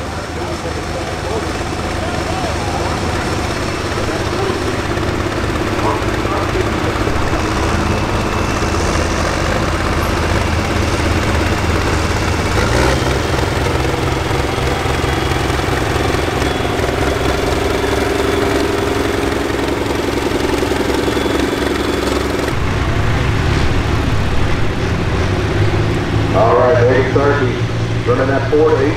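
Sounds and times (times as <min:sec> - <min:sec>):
diesel tractor engine running: 0:00.0 - 0:28.9.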